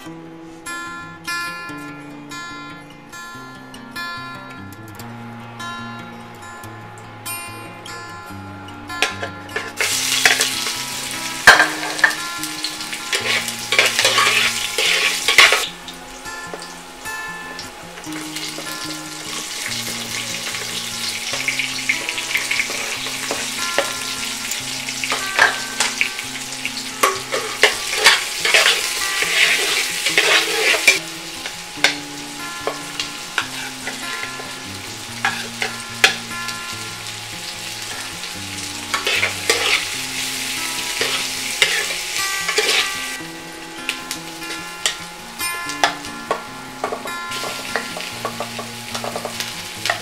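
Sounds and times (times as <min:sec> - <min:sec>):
soft background music: 0:00.0 - 0:50.0
vegetables sizzling in oil: 0:09.0 - 0:50.0
utensil clinking against metal pot: 0:11.4 - 0:12.2, 0:13.1 - 0:15.7, 0:25.1 - 0:26.0, 0:27.0 - 0:31.0.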